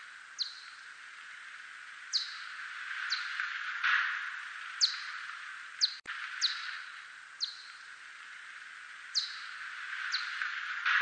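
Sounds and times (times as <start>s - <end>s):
steady hiss: 0.0s - 11.0s
bat echolocation chirps: 0.3s - 1.4s, 2.1s - 3.4s, 4.2s - 7.9s, 9.1s - 10.4s.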